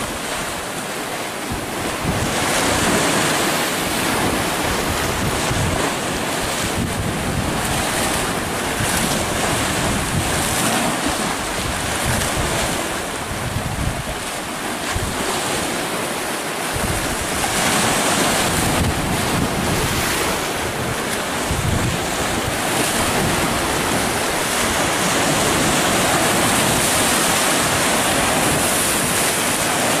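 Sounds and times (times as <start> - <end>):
sea waves splashing on rocks: 0.1 - 30.0
wind buffeting microphone: 1.4 - 15.8, 16.6 - 30.0.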